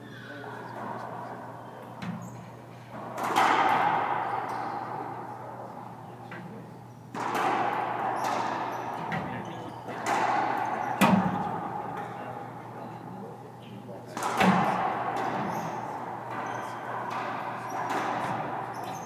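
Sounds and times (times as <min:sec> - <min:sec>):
ball smacking off court walls: 0:07.1 - 0:11.5, 0:14.2 - 0:19.0.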